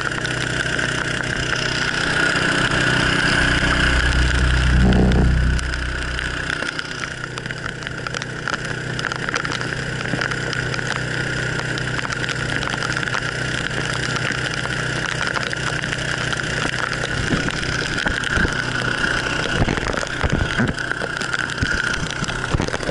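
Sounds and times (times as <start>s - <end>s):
small boat engine running: 0.0s - 22.9s
water rushing past hull: 0.0s - 22.9s
low thumps: 3.2s - 6.7s.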